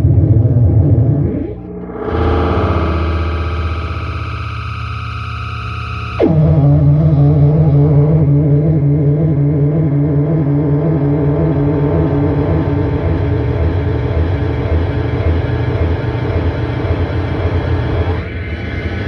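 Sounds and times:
loud electronic noise drone: 0.0s - 19.0s
high tone sliding upward: 1.0s - 13.9s
steady layered tones: 6.2s - 19.0s.

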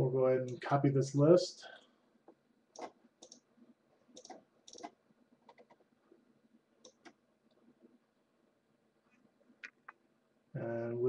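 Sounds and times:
mouse and keyboard clicks: 2.8s - 3.4s, 4.1s - 5.8s, 6.8s - 7.2s.

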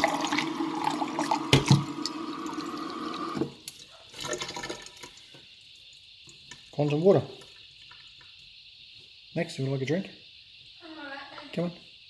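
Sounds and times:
tap water pouring into glass: 0.0s - 3.6s.

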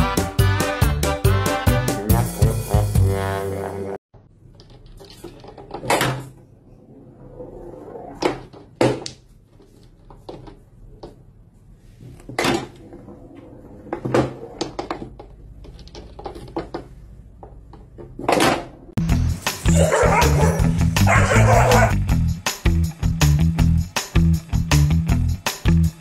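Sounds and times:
billiard balls clicking and knocking: 4.2s - 11.4s, 12.2s - 19.0s.

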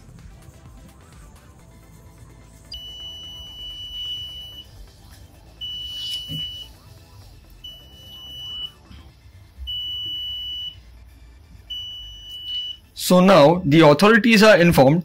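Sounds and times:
electronic buzzer beeping: 2.7s - 4.8s, 5.6s - 8.9s, 9.6s - 10.9s, 11.7s - 12.9s.

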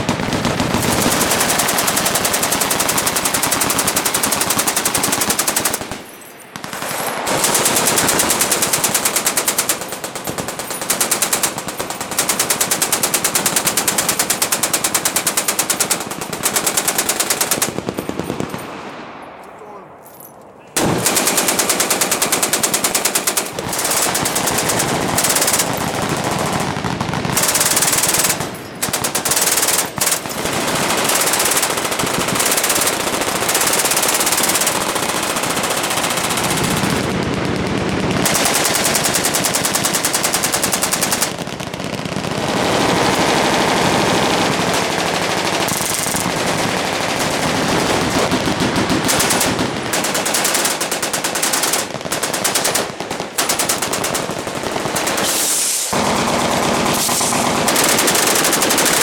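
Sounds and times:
automatic machine-gun fire: 0.0s - 6.0s, 6.6s - 18.7s, 20.8s - 59.0s.

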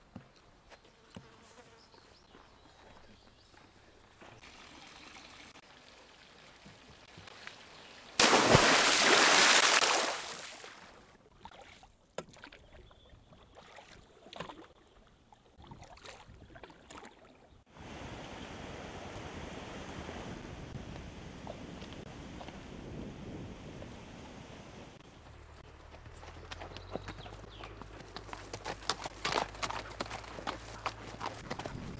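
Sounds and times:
flowing stream water: 4.0s - 12.7s
paddle splashes and drips: 4.2s - 17.6s
water splashing: 8.0s - 12.9s.

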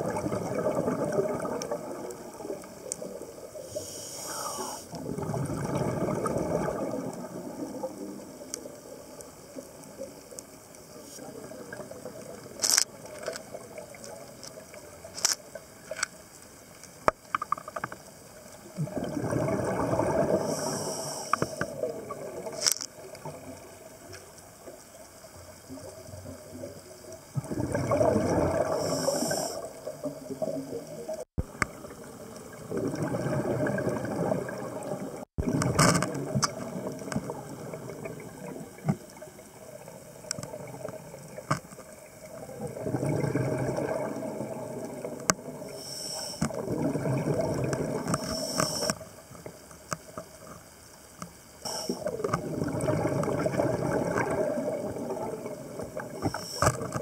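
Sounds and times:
exhaled bubbles underwater: 0.0s - 15.7s, 18.4s - 50.6s, 51.7s - 57.0s
regulator hiss: 3.6s - 5.0s, 20.4s - 21.8s, 28.7s - 29.9s, 45.6s - 46.5s, 48.1s - 49.2s, 51.6s - 52.2s, 56.2s - 57.0s.

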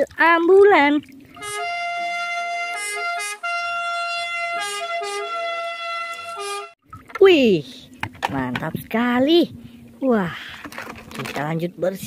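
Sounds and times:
ambulance two-tone siren: 1.4s - 6.8s.

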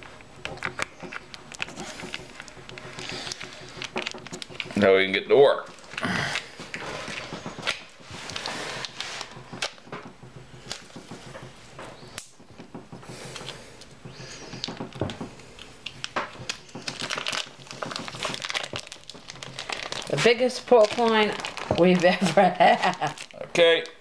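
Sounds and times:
plastic packaging crinkling and tearing: 0.2s - 9.9s, 14.6s - 24.0s.

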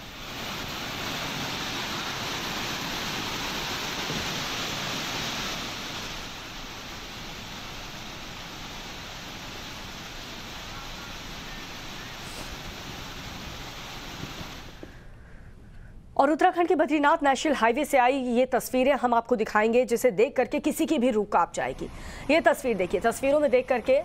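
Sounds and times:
flooded river rushing: 0.0s - 14.9s.

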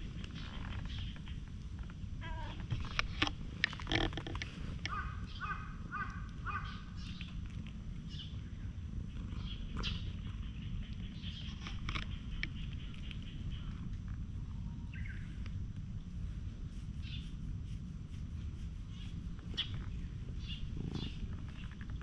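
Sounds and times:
low rumble: 0.0s - 22.0s
bird calling: 4.8s - 7.3s.

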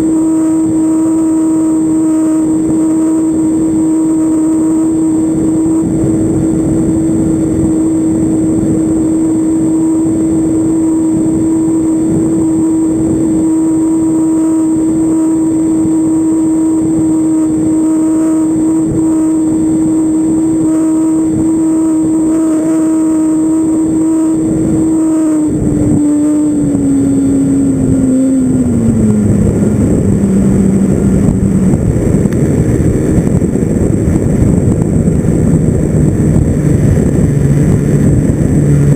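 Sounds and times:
model airplane engine running: 0.0s - 38.9s
wind rushing past microphone: 0.0s - 38.9s.

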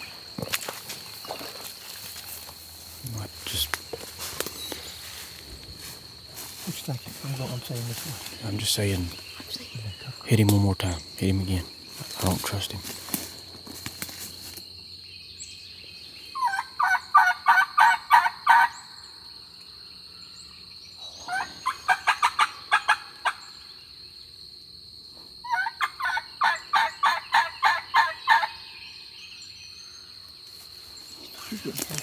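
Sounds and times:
turkey call yelps: 16.4s - 19.0s, 21.2s - 23.4s, 25.4s - 28.6s.

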